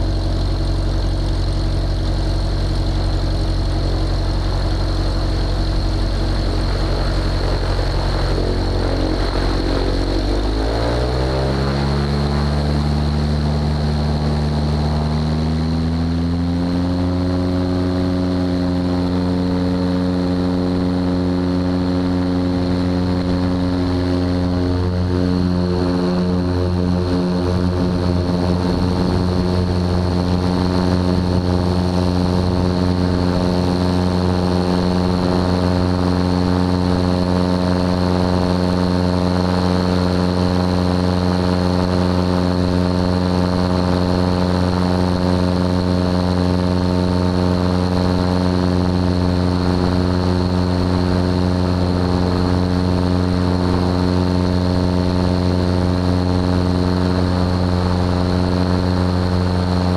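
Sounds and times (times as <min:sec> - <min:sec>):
light aircraft engine droning: 0:00.0 - 0:59.9.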